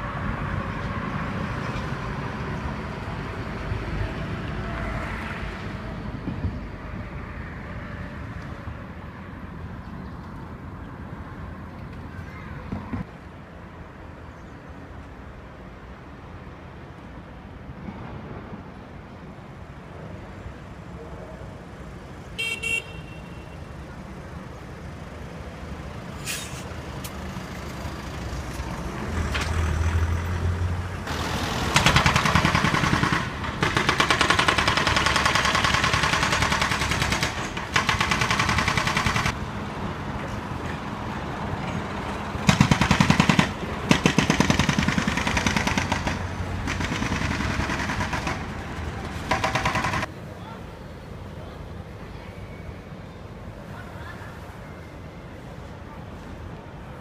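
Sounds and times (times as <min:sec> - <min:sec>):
street traffic hum: 0:00.0 - 0:57.0
rapid mechanical rattling-hammering: 0:31.7 - 0:39.4, 0:42.5 - 0:48.5.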